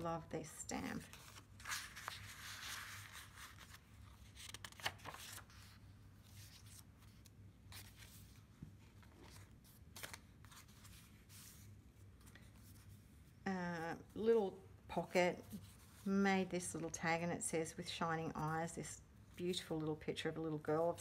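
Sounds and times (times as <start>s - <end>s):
paper pages rustling: 0.7s - 13.2s.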